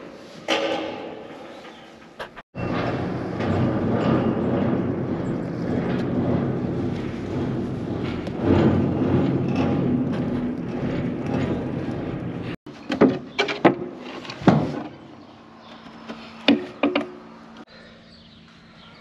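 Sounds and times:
metal clanks and knocks: 0.4s - 1.5s, 2.2s - 17.6s
machine drone echoing: 2.5s - 12.6s.

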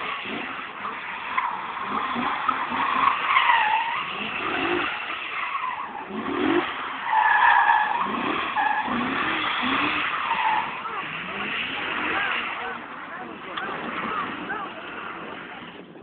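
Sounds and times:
car engine revving: 0.0s - 16.0s
tyres squealing: 0.1s - 15.6s.

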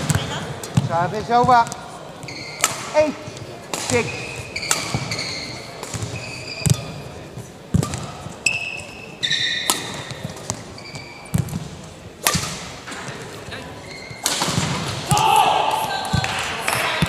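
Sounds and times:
shoes squeaking on court: 0.0s - 14.8s
rackets striking shuttlecock: 2.5s - 7.0s, 7.7s - 13.3s, 14.1s - 17.0s.

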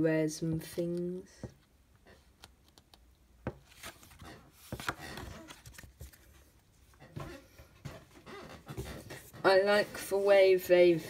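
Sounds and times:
paper rustling: 3.6s - 7.3s.

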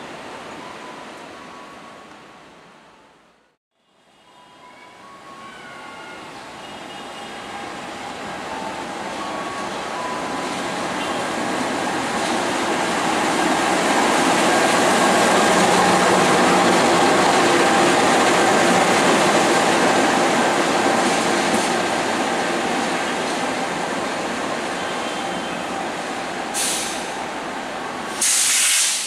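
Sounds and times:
locomotive engine passing: 7.4s - 24.8s.

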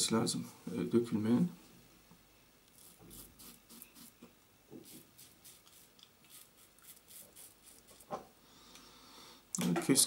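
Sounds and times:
razor scraping stubble: 2.7s - 4.2s, 4.8s - 8.2s.

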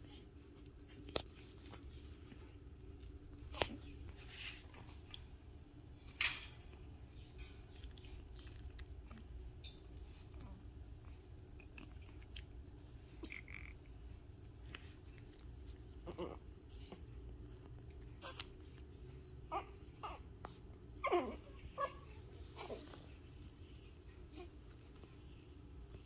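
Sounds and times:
puppies whining: 18.2s - 23.6s.

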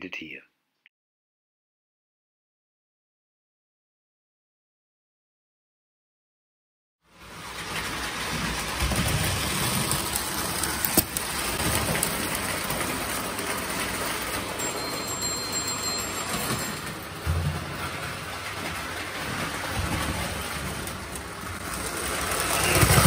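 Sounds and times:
toy train rattling on track: 7.2s - 23.0s.

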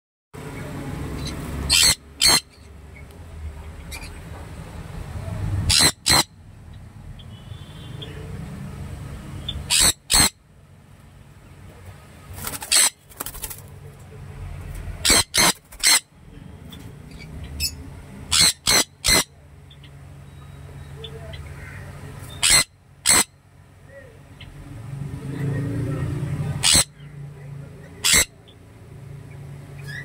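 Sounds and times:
parrots screeching: 1.2s - 2.7s, 5.7s - 6.3s, 9.4s - 10.4s, 12.4s - 13.6s, 15.0s - 16.1s, 17.1s - 19.4s, 21.5s - 23.3s, 26.6s - 27.0s, 28.0s - 28.4s.

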